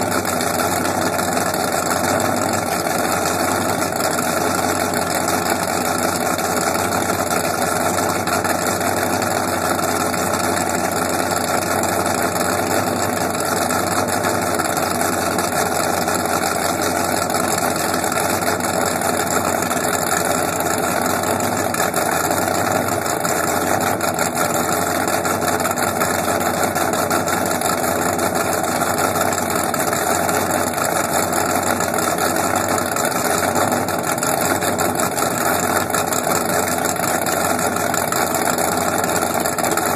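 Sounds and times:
boat engines idling: 0.0s - 39.9s.

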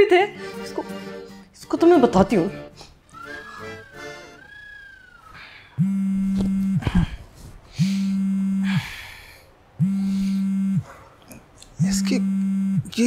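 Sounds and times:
phone vibrating buzz: 5.8s - 7.0s, 7.8s - 8.8s, 9.8s - 10.8s, 11.8s - 12.9s.

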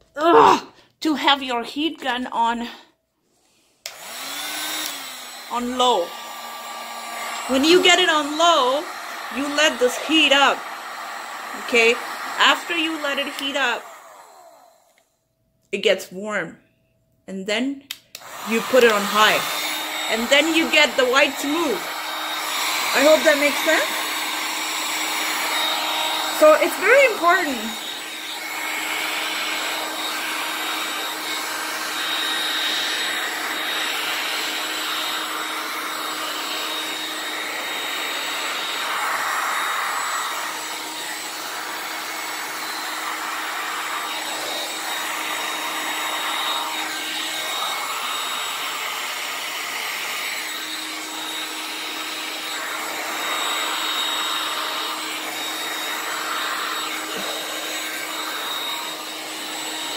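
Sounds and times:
heat gun blowing air: 3.5s - 15.0s, 18.0s - 59.9s.

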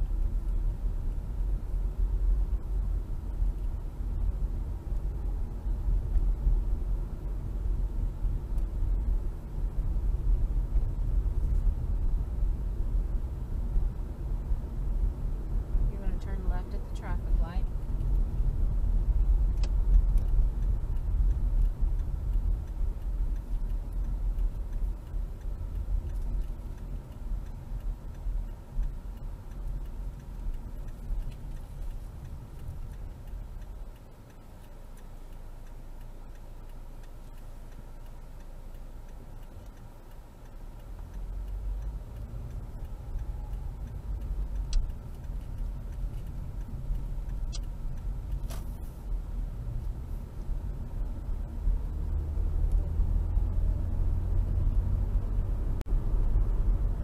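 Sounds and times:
car tyre and engine rumble: 0.0s - 57.0s
turn signal ticking: 0.0s - 57.0s.

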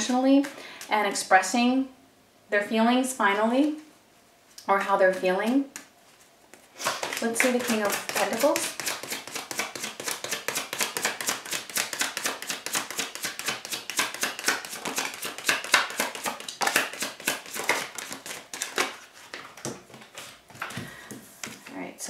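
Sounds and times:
cards being shuffled: 5.7s - 20.8s.

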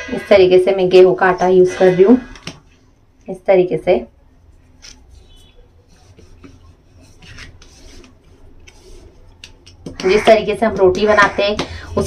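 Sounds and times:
hand rubbing dough on tiles: 4.4s - 12.0s.

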